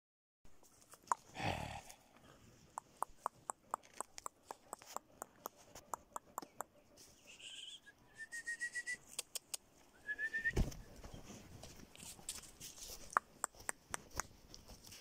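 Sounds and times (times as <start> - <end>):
high trilled whistle: 7.3 - 9.0, 10.0 - 10.7
footsteps on dirt path: 10.6 - 15.0.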